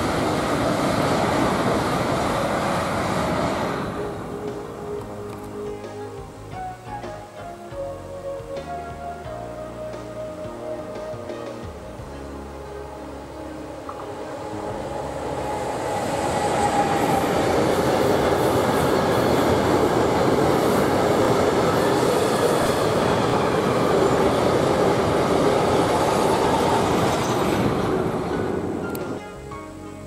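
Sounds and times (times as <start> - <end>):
train passing: 0.0 - 30.0
wheels running on rails: 13.9 - 29.2.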